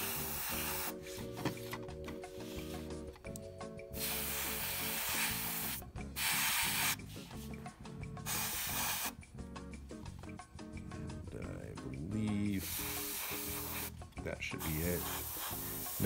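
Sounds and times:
airbrush spraying hiss: 0:00.0 - 0:01.6, 0:02.2 - 0:03.0, 0:03.9 - 0:07.6, 0:08.2 - 0:09.3, 0:12.5 - 0:14.0, 0:14.6 - 0:16.0
background music: 0:00.0 - 0:16.0.

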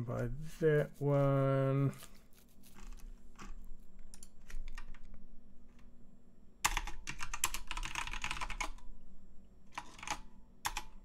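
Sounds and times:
typing on a computer keyboard: 0:06.6 - 0:08.9, 0:09.7 - 0:11.0.

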